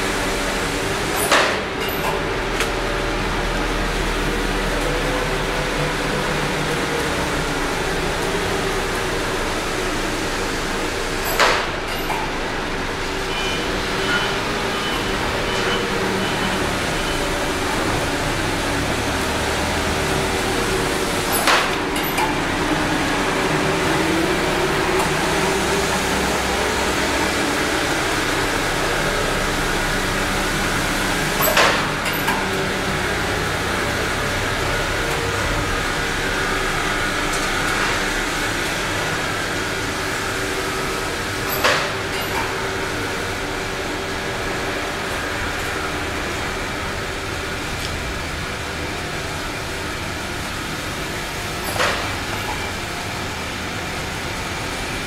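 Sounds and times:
factory machinery running: 0.0s - 55.0s.

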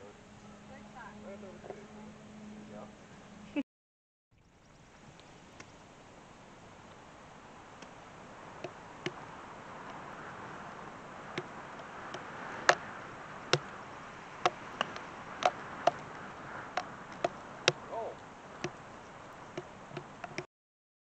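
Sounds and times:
golf club chipping ball: 11.3s - 13.8s, 14.4s - 17.9s
sharp clicks and ticks: 14.4s - 16.0s, 16.7s - 18.8s, 19.6s - 20.5s.

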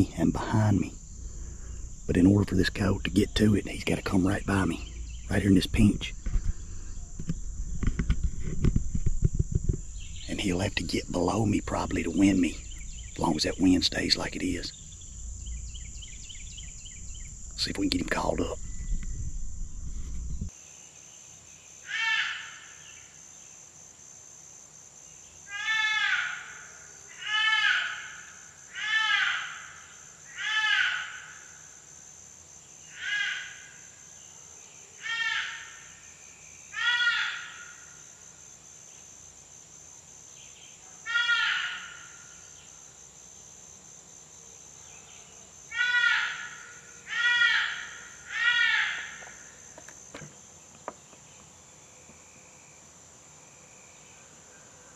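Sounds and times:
insects droning: 0.0s - 54.9s
electronic fawn bleating cries: 41.1s - 41.8s, 45.8s - 46.4s, 47.1s - 49.1s.

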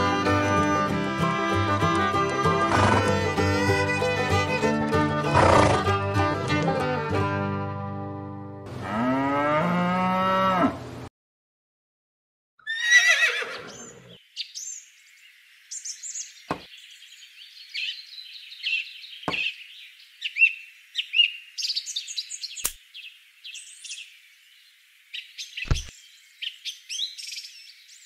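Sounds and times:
horse whinny: 2.6s - 3.4s, 5.3s - 5.9s, 12.6s - 14.1s
birds chirping: 12.7s - 28.0s.

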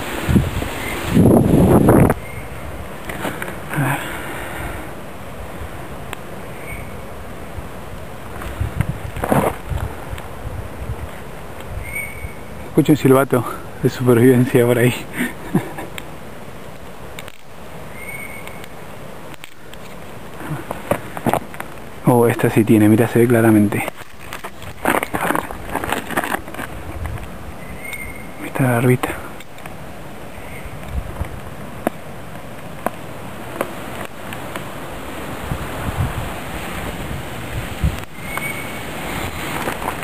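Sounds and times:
steady outdoor hiss: 0.0s - 40.0s
wind rumbling on microphone: 0.0s - 40.0s
knife scraping oak gall: 23.8s - 27.3s.

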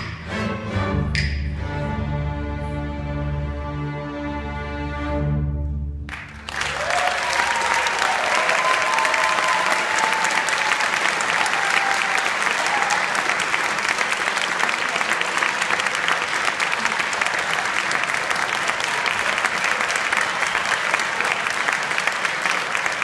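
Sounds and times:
string orchestra chord: 0.0s - 6.4s
audience applause: 6.1s - 23.0s
audience cheering: 6.1s - 23.0s.

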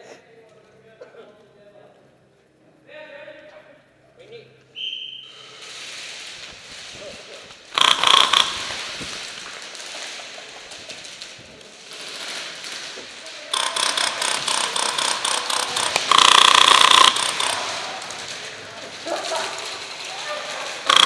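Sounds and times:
airsoft guns firing: 5.6s - 21.0s
loud held pitched tone: 13.5s - 18.0s.

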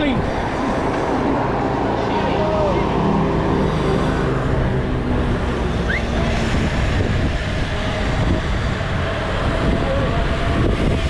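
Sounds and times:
moving vehicle noise: 0.0s - 11.0s.

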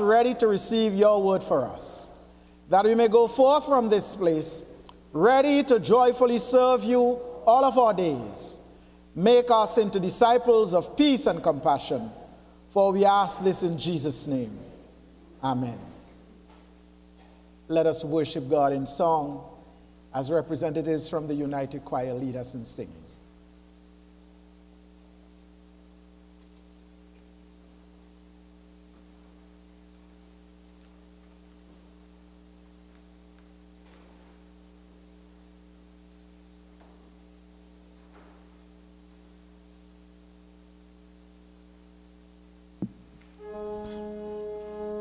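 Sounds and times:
electrical mains hum: 0.0s - 45.0s
organ playing held chords: 43.3s - 45.0s.

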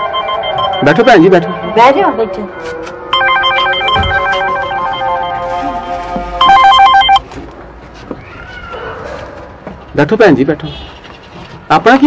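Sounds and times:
phone ringtone beeping melody: 0.0s - 7.2s.

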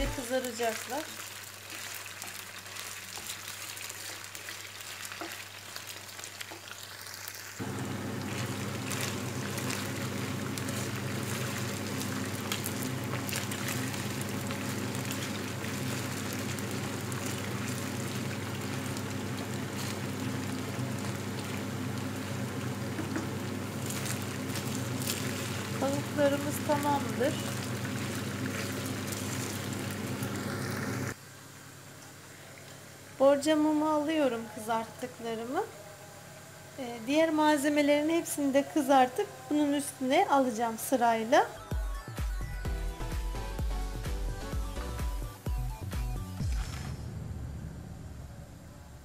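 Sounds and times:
chicken sizzling in oil: 0.0s - 33.1s.

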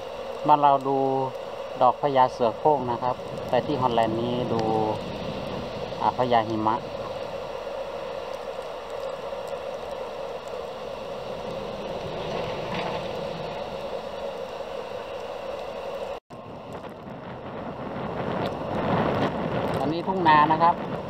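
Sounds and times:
wind in a snowstorm: 0.0s - 21.0s.

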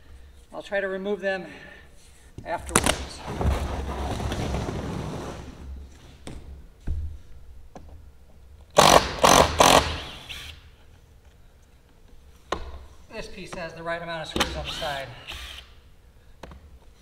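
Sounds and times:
hardboard sheet scraping and rumbling: 3.1s - 5.9s.

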